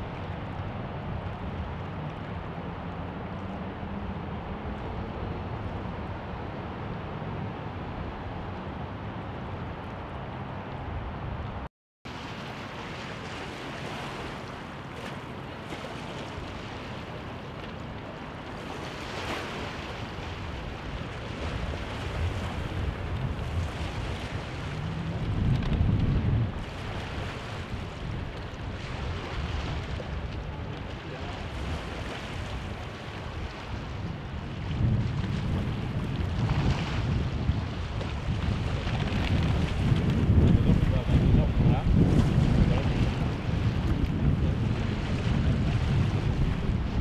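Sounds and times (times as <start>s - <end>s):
water movement: 12.1s - 47.0s
wind buffeting microphone: 13.3s - 47.0s.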